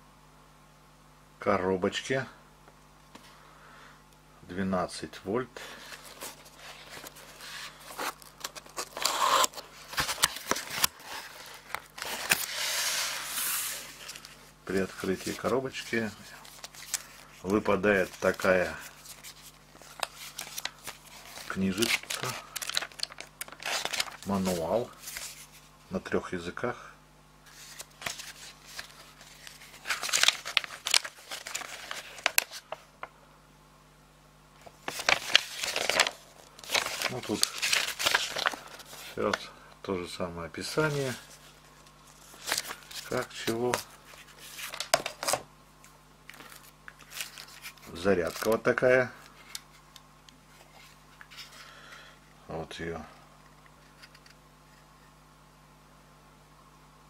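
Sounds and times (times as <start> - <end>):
cardboard scraping: 5.8 - 25.6
cardboard rustle: 5.8 - 25.7, 27.5 - 32.8, 34.6 - 39.4.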